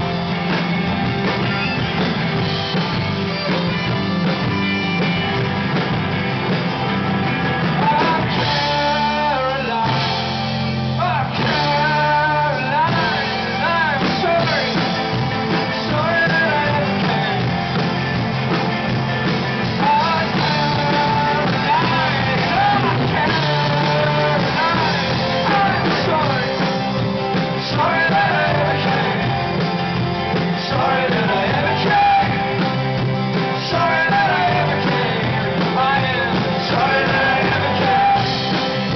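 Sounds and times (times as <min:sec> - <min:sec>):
rock band playing: 0:00.0 - 0:38.9
person singing: 0:07.2 - 0:17.5, 0:19.6 - 0:38.9.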